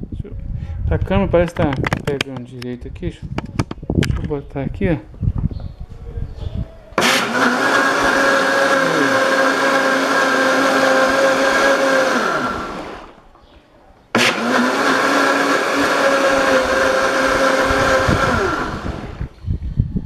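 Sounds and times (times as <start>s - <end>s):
blender motor whining: 7.0s - 13.2s, 14.1s - 19.4s.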